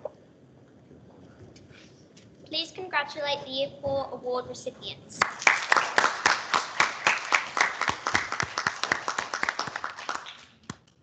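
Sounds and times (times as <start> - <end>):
children applauding: 5.2 - 10.7.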